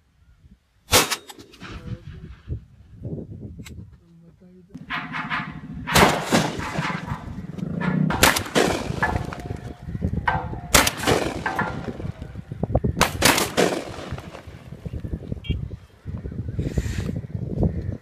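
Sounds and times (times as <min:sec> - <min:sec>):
gunshots: 0:04.8 - 0:14.8.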